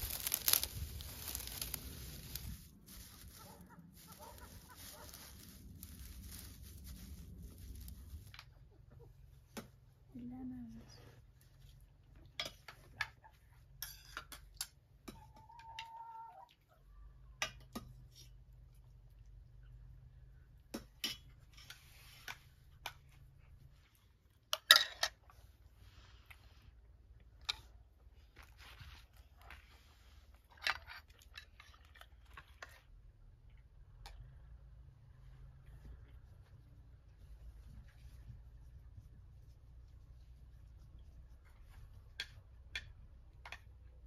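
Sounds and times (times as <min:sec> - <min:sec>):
bread rustling: 0:00.0 - 0:08.4.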